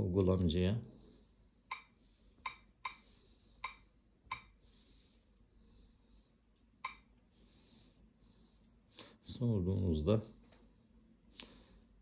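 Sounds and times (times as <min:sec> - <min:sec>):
faint room hiss: 0:00.0 - 0:12.0.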